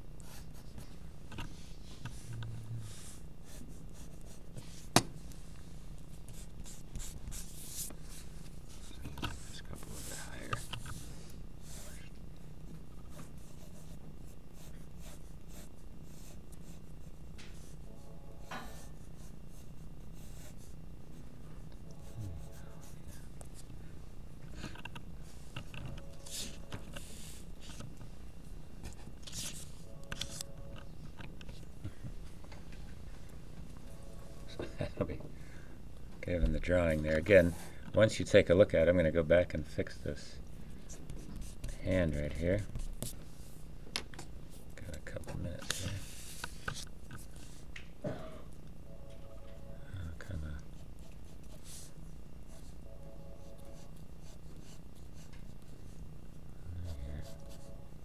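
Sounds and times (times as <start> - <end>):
low room hum: 0.0 - 58.0
pencil scratching on paper: 2.8 - 4.9, 13.1 - 17.9, 18.6 - 20.8, 21.9 - 23.3, 53.4 - 56.0, 57.1 - 57.8.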